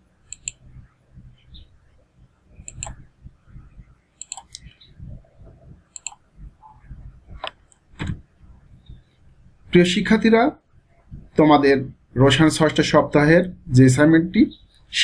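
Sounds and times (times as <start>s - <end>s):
faint room noise: 0.0s - 15.0s
computer mouse clicking: 0.3s - 0.6s, 2.6s - 3.0s, 4.2s - 4.8s, 5.9s - 6.2s.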